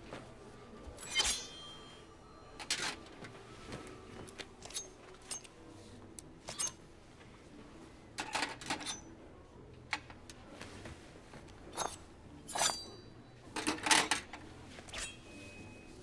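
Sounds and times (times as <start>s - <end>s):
knife blade ringing: 1.0s - 2.0s, 12.5s - 13.1s
metal clicks scrapes and clinks: 4.6s - 5.5s.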